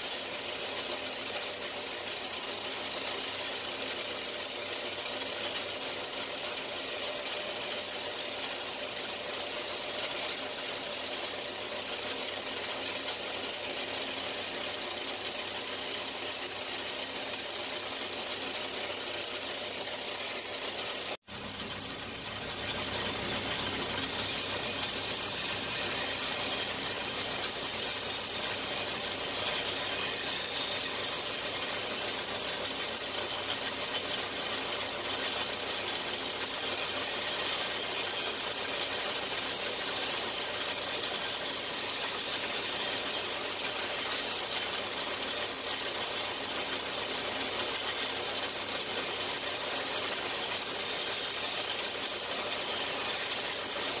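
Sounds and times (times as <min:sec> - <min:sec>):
power tool running with hiss: 0:00.0 - 0:54.0.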